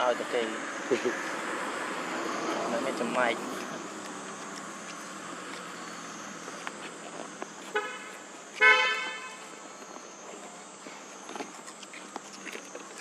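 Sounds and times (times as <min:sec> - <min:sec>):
vehicle horn beeping: 0:07.7 - 0:09.5.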